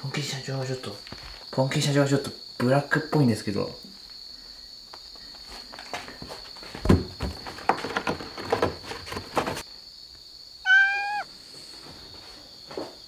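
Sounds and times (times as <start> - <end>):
cat meowing: 10.6 - 11.3.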